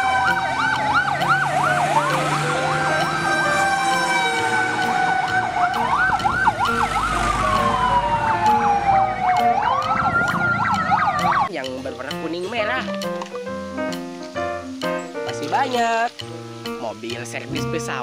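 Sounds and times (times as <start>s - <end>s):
siren fast yelping sweeps: 0.0s - 11.5s
siren slow wail: 0.0s - 11.5s.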